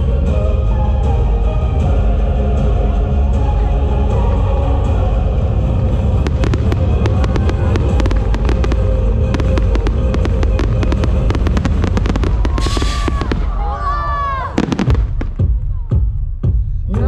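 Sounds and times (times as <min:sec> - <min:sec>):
fireworks bangs and crackles: 0:05.9 - 0:15.8.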